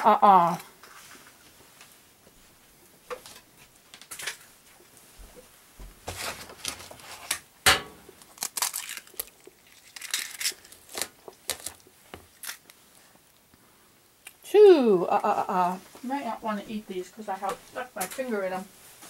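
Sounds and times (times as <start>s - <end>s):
eggshell cracking into plastic bowl: 7.6s - 12.8s.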